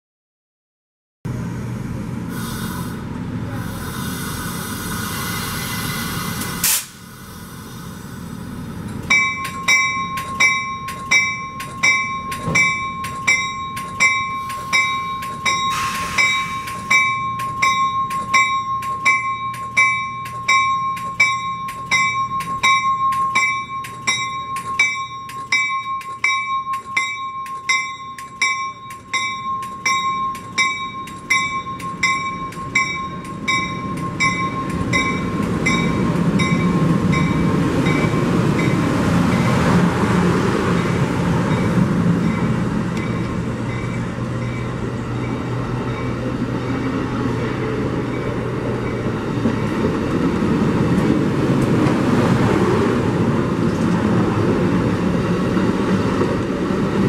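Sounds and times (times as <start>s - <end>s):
railroad bell ringing: 7.9s - 51.6s.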